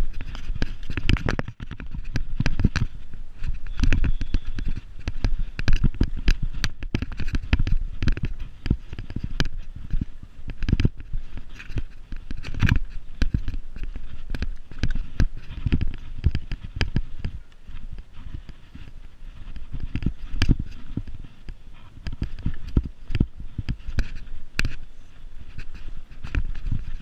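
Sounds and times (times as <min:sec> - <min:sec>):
mountain bike rattling and knocking: 0:00.0 - 0:17.5.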